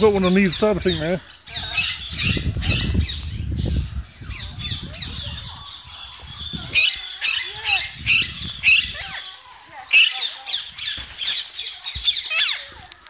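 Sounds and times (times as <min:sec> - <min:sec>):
parrots squawking: 0:01.2 - 0:03.4, 0:04.3 - 0:11.0.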